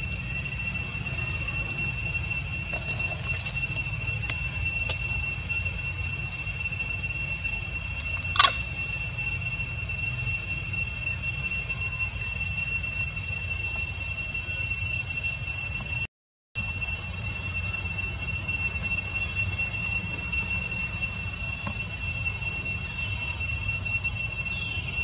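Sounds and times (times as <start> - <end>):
cicadas droning: 0.0 - 25.0.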